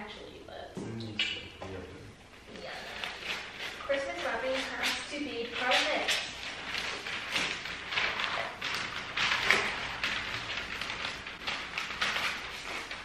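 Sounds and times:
wrapping paper rustling and crinkling: 2.7 - 13.0.

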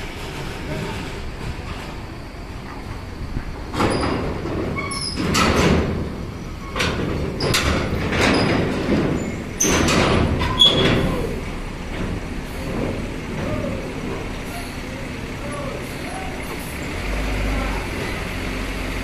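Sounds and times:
diesel engines rumbling: 0.0 - 19.0
air brakes hissing: 12.4 - 16.9.

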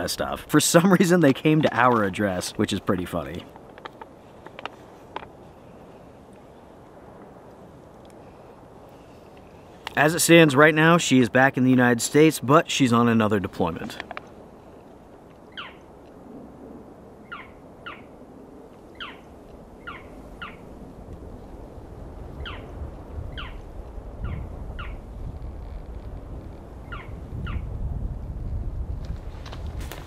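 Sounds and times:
high whistled animal calls: 15.5 - 15.8, 17.2 - 18.1, 18.9 - 19.2, 19.8 - 20.6, 22.4 - 22.7, 23.3 - 23.6.

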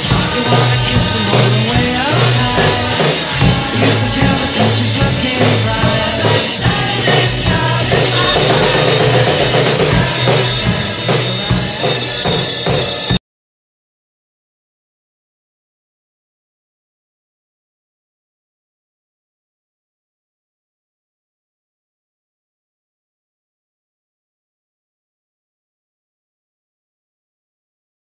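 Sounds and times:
drum kit playing: 0.0 - 13.2
rock song with bass line: 0.0 - 13.2.

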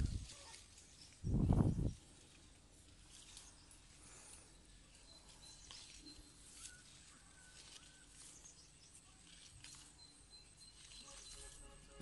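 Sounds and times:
faint thin high calls: 0.0 - 1.2, 3.1 - 12.0
soft rustles: 0.0 - 12.0.

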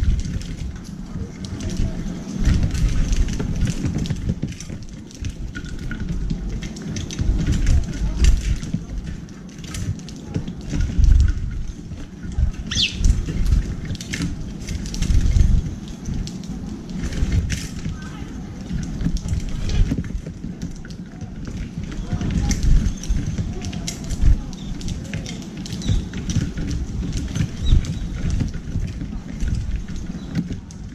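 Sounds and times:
wings fluttering: 12.4 - 13.6
bird chirp: 12.7 - 13.0
birds pecking seeds in metal tray: 24.6 - 26.1.

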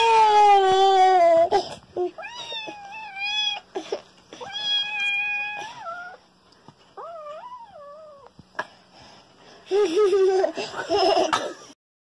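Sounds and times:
kitten meowing: 4.4 - 6.2.

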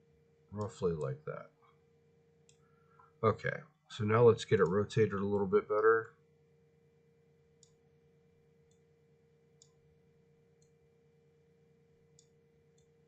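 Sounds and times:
faint steady hum: 0.0 - 13.0
computer mouse clicks: 7.6 - 7.8, 10.6 - 10.8, 12.1 - 13.0.

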